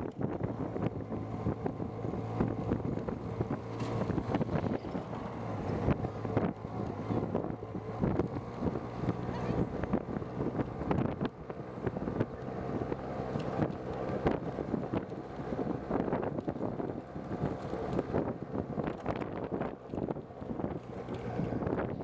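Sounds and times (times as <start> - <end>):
motorcycle engine running: 0.0 - 22.0
wind buffeting microphone: 0.0 - 22.0
knocks and rattles: 2.3 - 7.4.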